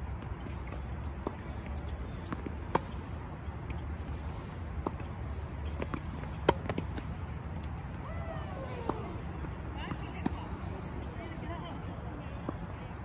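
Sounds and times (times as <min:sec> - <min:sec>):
tennis ball bouncing: 0:00.4 - 0:04.2, 0:04.8 - 0:08.0.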